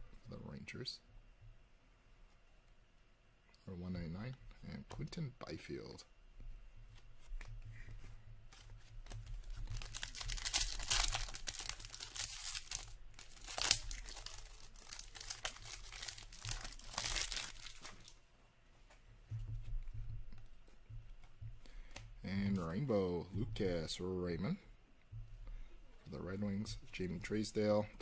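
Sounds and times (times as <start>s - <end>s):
wrapper crinkling: 9.2s - 18.2s
foil wrapper ripping: 9.6s - 18.2s.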